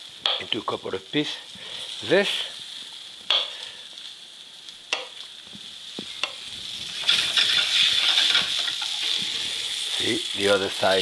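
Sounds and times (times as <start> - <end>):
fish sizzling in a skillet: 0.0 - 11.0.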